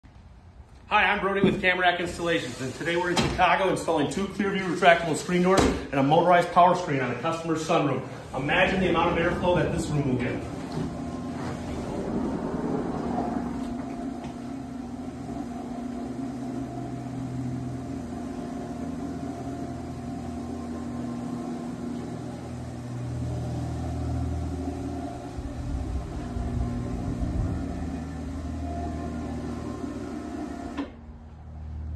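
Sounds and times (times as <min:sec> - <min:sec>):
screen motor humming: 0:08.1 - 0:31.9.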